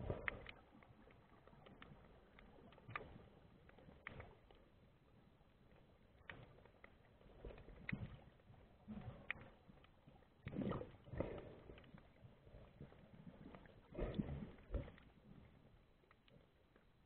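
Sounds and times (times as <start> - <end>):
underwater clicks and knocks: 0.0 - 4.9, 5.5 - 17.0.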